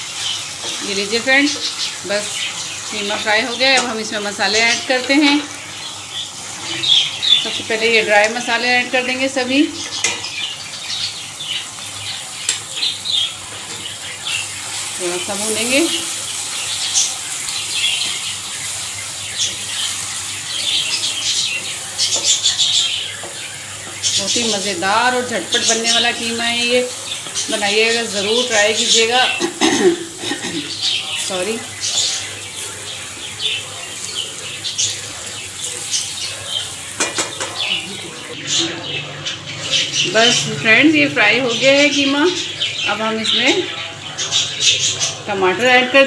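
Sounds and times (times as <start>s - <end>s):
meat and spices sizzling: 0.0s - 46.0s.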